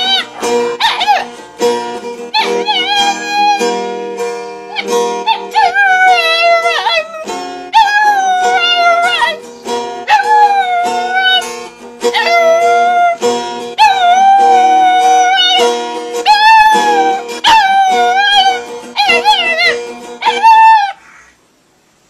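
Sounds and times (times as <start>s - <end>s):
puppy howling: 0.0s - 1.4s, 2.3s - 3.7s, 4.7s - 9.4s, 10.1s - 11.4s, 12.1s - 13.2s, 13.8s - 15.6s, 16.2s - 21.0s
strummed acoustic guitar: 0.0s - 20.8s.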